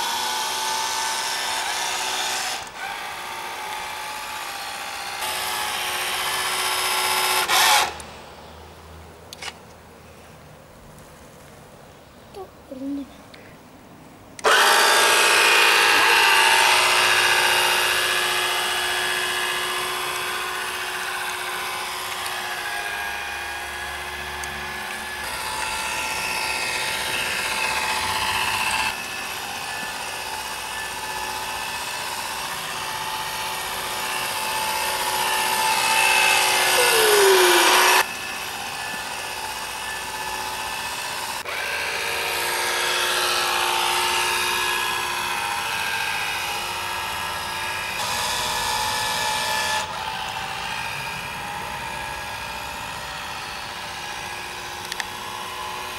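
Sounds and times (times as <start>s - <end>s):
small electric motor whining: 0.0s - 8.0s, 14.4s - 55.9s.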